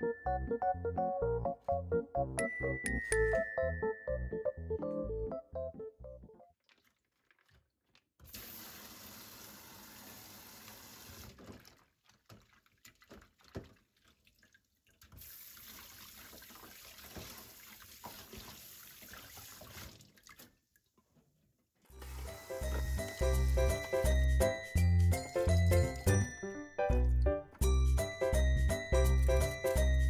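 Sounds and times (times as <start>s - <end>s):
background music: 0.0s - 6.4s, 22.0s - 30.0s
wet splashing and handling: 6.5s - 8.2s, 11.4s - 20.9s
tap water running: 8.2s - 20.5s, 22.0s - 24.4s.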